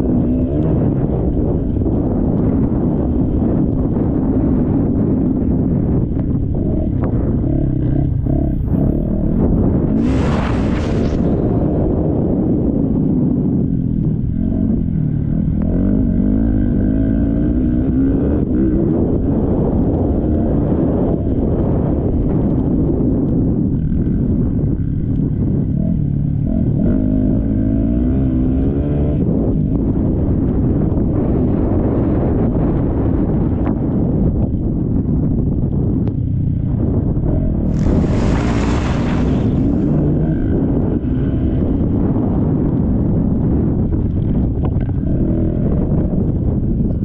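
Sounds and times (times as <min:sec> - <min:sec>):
brief hiss: 0:10.0 - 0:11.6, 0:37.7 - 0:40.0
motocross bike engine revving: 0:37.4 - 0:41.5.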